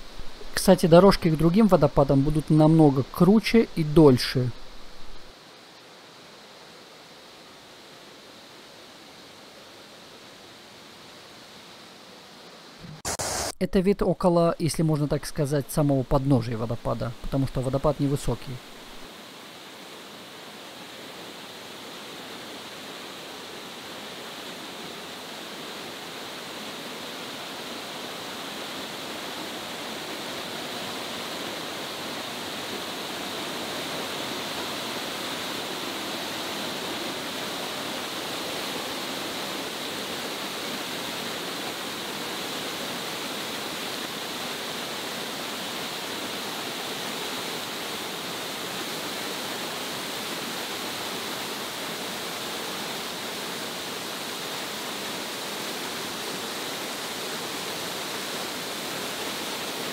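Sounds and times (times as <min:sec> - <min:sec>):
waterfall splashing into pool: 0:12.8 - 0:13.5.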